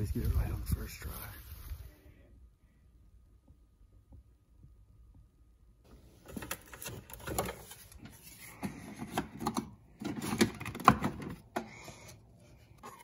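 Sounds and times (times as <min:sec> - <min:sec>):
plastic clicks and clunks: 0:08.6 - 0:11.8.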